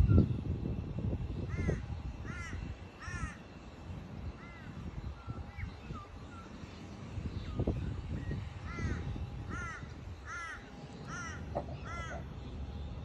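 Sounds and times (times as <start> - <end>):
bird giving harsh calls: 8.6 - 12.4.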